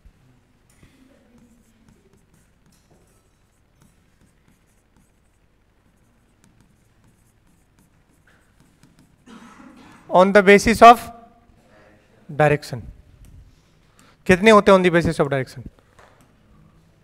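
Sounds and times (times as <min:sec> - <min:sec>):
pen scratching while writing: 0:01.4 - 0:09.2.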